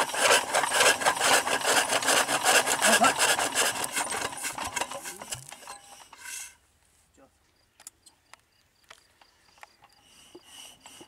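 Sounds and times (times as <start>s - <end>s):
diesel engine cranking without firing: 0.0s - 6.2s.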